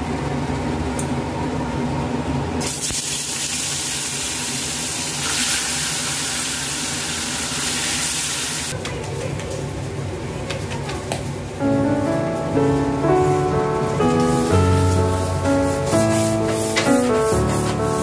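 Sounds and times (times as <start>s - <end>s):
fish sizzling in hot oil: 2.6s - 8.7s.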